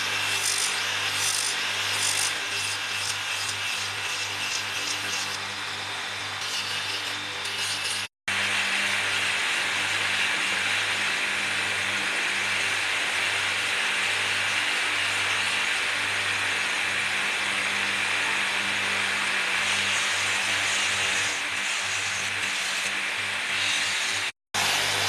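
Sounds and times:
drum sander sanding: 0.0 - 5.6, 6.3 - 11.9, 17.9 - 25.0
electric motor humming: 0.0 - 25.0.

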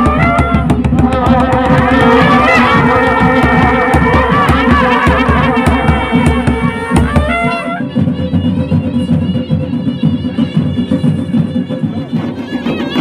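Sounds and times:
deep drum beats: 0.0 - 13.0
long brass horns gliding up: 0.1 - 7.8.

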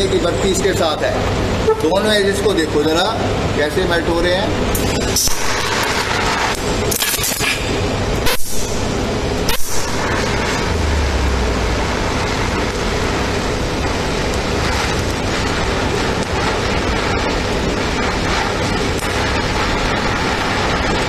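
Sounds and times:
welding arc hissing: 4.5 - 21.0
welding arc pops: 4.7 - 21.0.

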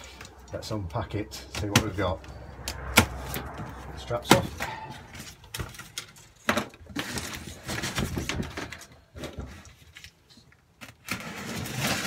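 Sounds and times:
cardboard flaps rustling: 6.8 - 10.1.

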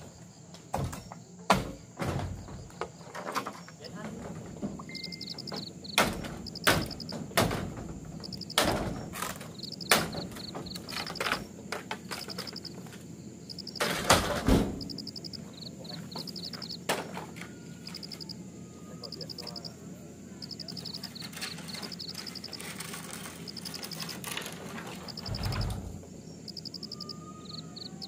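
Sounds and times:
insects chirping in trills: 0.0 - 28.0
sharp irregular knocks: 4.5 - 12.7.

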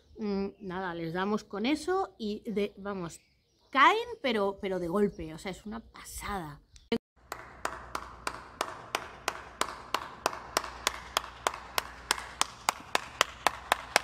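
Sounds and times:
person clapping hands: 7.2 - 14.0.

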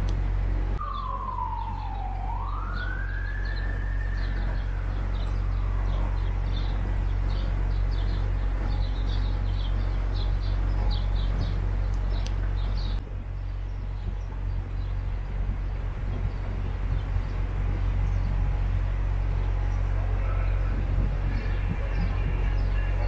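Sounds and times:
birds chirping: 0.0 - 23.0
boat motor droning: 0.0 - 23.0
emergency siren wailing: 0.8 - 12.0, 16.4 - 23.0.

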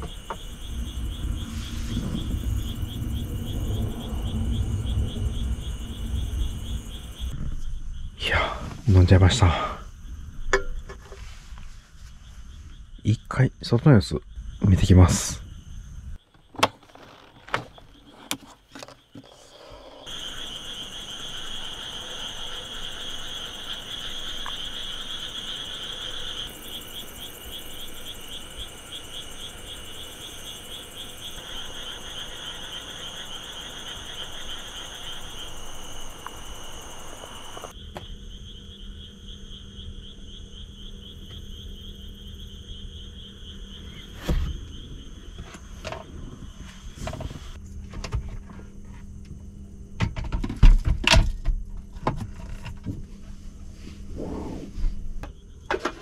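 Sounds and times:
insect pulsing trill: 0.0 - 10.9, 19.0 - 47.6
night insects chirping: 0.0 - 56.0
thump: 44.2 - 44.6.

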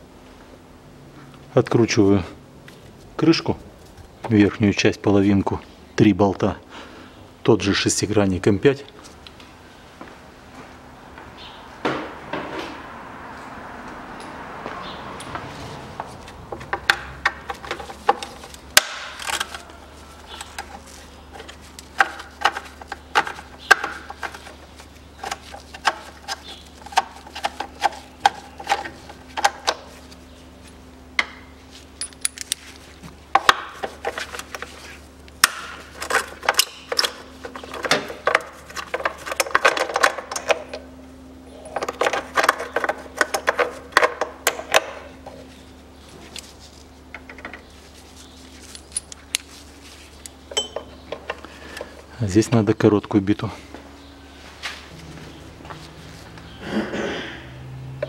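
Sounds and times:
steady low hum: 0.0 - 58.0
metal knocks and clinks: 32.0 - 32.6, 50.5 - 51.1.

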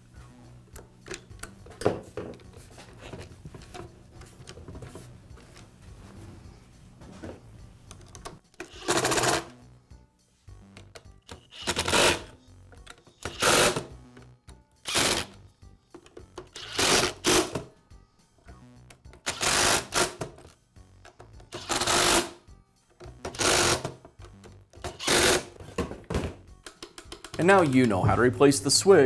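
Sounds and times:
power screwdriver bursts: 11.5 - 12.3, 13.3 - 13.9, 14.8 - 15.4, 16.6 - 17.6, 19.3 - 20.2, 21.6 - 22.4, 23.3 - 23.9, 24.9 - 25.5.

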